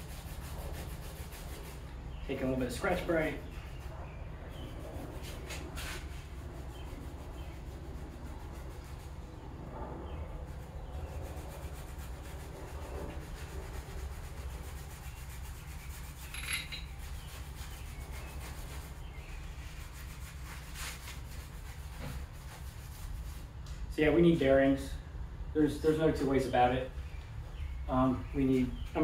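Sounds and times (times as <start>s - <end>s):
abrasive pad scrubbing metal: 10.1s - 23.3s.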